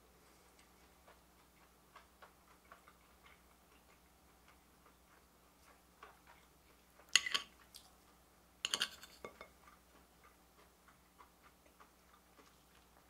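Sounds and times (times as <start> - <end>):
metal spoon scraping a plate: 7.2 - 7.5, 8.6 - 9.5.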